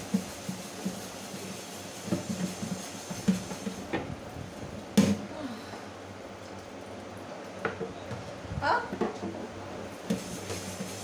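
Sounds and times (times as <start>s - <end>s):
pan scrubbed in metal sink: 0.0s - 4.0s, 9.9s - 11.0s.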